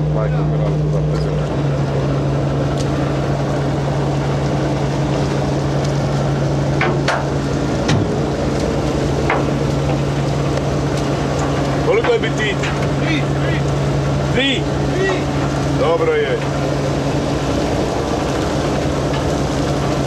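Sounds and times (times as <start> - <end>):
diesel engine droning: 0.0 - 20.0.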